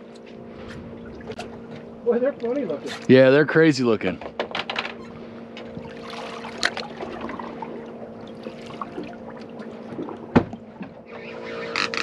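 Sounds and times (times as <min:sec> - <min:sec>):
steady low hum: 0:00.0 - 0:12.0
water sloshing against hull: 0:00.0 - 0:12.0.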